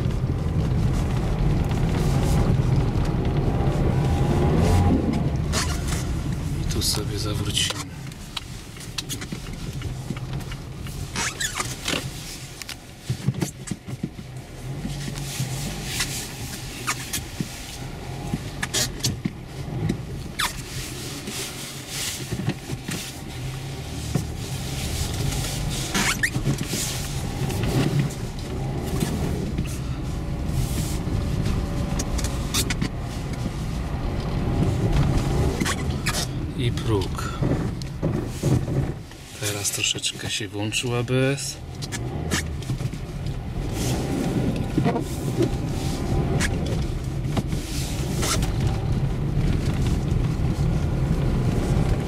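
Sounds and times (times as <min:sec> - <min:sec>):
car engine running low: 0:00.0 - 0:52.0
tyres crunching on packed snow: 0:19.5 - 0:52.0.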